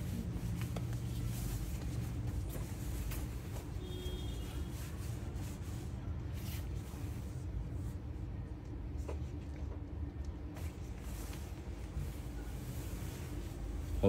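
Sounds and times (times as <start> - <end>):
cloth rustling: 0.0 - 8.0
soft scratchy brushes: 0.0 - 9.6, 10.6 - 14.0
steady low hum: 0.0 - 14.0.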